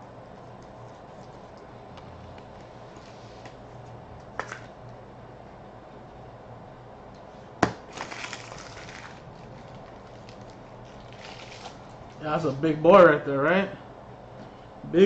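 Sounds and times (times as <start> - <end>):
crinkly plastic rustling: 7.8 - 12.2.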